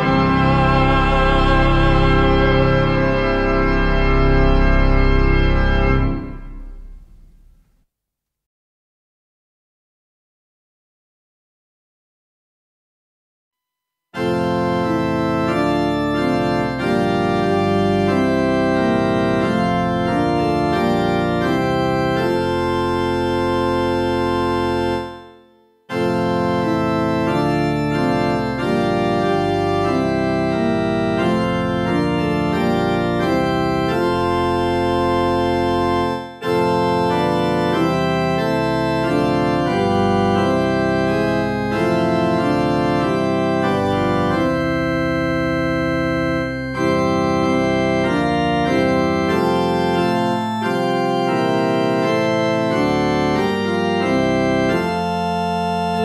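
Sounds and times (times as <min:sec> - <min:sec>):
organ music: 0:00.0 - 0:07.6, 0:14.2 - 0:56.0.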